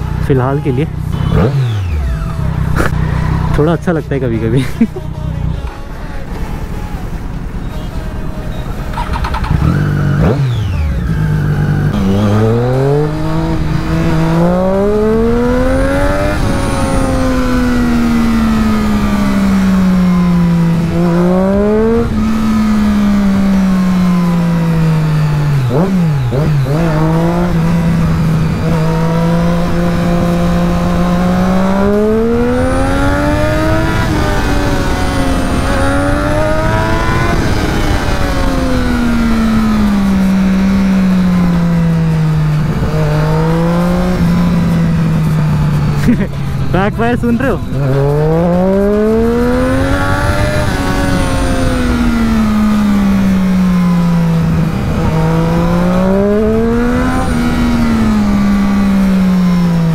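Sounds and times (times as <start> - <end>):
motorcycle engine accelerating: 0.0 - 5.0, 8.8 - 59.9.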